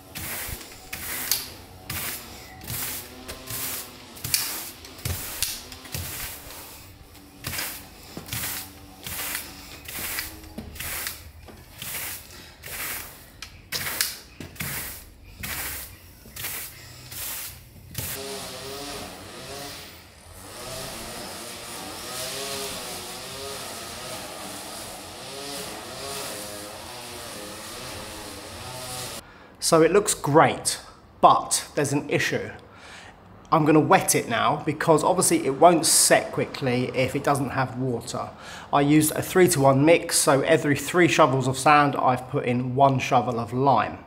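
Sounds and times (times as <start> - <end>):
push broom scraping mortar on stone: 0.0 - 29.2.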